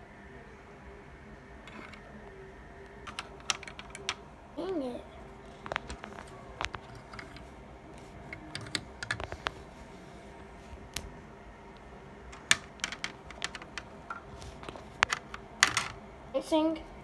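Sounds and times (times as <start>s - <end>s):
faint steady hum: 0.0s - 17.0s
plastic clicks and taps: 12.4s - 15.9s.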